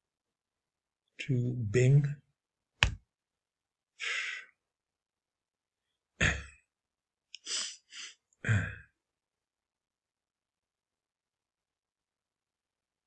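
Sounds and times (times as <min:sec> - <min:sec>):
short puffs of breath: 0:07.4 - 0:08.2.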